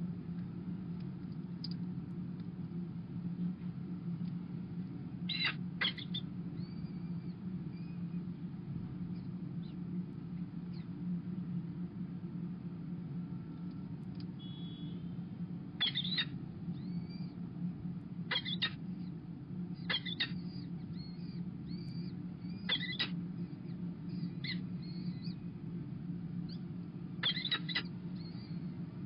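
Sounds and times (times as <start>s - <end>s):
steady low hum: 0.0s - 29.0s
falcon chicks cheeping: 5.3s - 7.9s, 15.8s - 17.3s, 18.3s - 19.1s, 19.8s - 25.4s, 27.2s - 28.7s.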